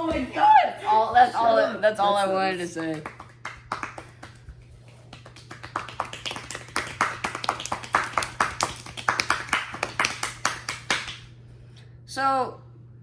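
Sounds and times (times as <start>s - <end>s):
steady low hum: 0.0s - 13.0s
people clapping: 2.8s - 11.3s.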